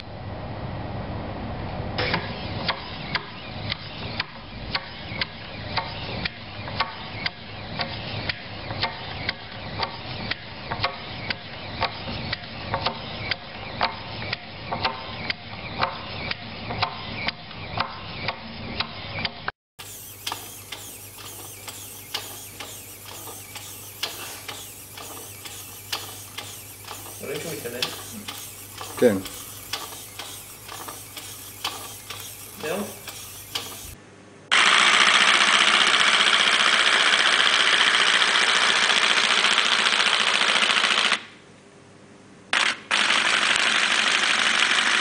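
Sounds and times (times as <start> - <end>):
mechanism clicking: 19.8 - 34.0
steady low hum: 19.8 - 34.5
small electric motor running: 19.8 - 41.2, 42.9 - 45.0.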